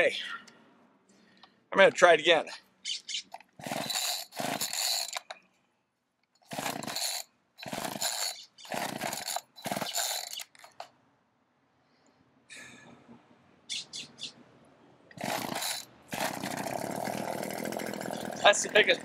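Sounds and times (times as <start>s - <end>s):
electric chainsaw bursts: 3.6s - 5.3s, 6.5s - 10.4s, 15.2s - 19.0s.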